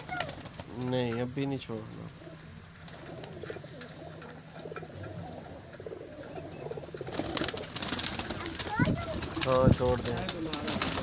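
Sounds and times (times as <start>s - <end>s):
pigeons cooing: 0.0s - 11.0s
wings flapping: 0.0s - 11.0s.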